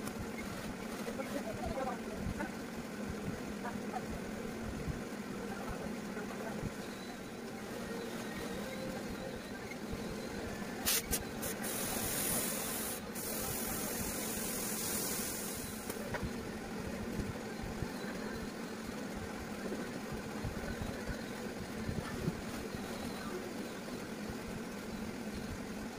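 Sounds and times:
low machine hum: 0.0 - 25.9
spray gun hissing: 10.8 - 15.9.

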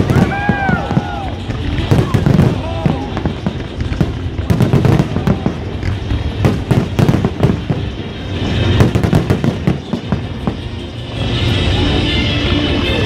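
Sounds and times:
fireworks bursting with bangs and crackles: 0.0 - 13.0.

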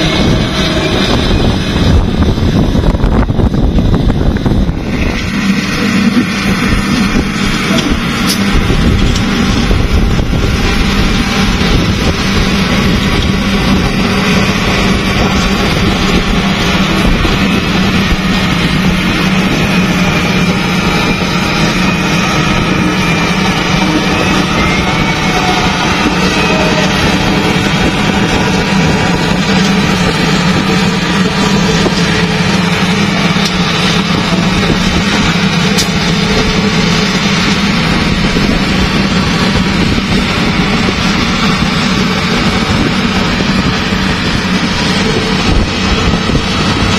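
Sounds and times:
wheel loader diesel engine: 0.0 - 46.9.

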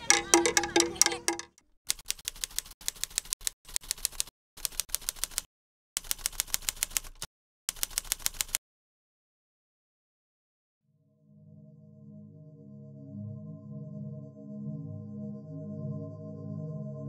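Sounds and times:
typewriter keys clacking: 0.0 - 8.6.

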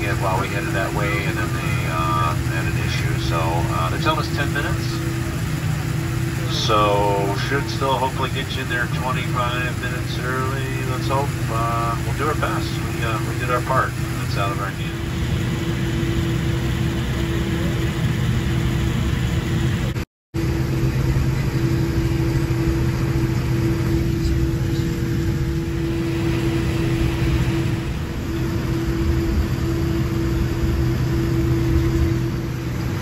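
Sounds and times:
jet engines idling: 0.0 - 33.0
low hum: 0.0 - 33.0.

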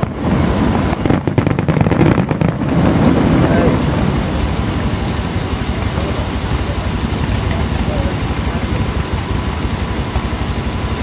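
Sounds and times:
car engines idling: 0.0 - 11.0.

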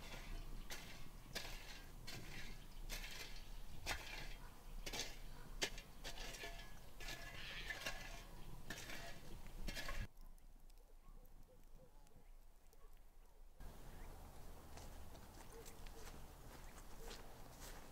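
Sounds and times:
utensils knocking and scraping pot: 0.0 - 10.1.

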